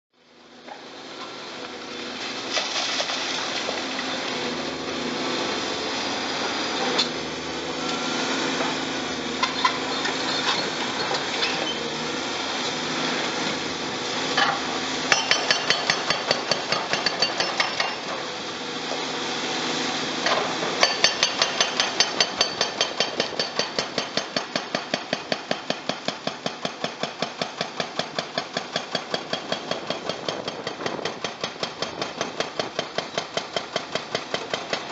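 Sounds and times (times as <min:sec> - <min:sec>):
excavator diesel engines running: 0:00.3 - 0:25.0
hydraulic breaker hammering concrete: 0:14.2 - 0:18.3, 0:20.2 - 0:34.9.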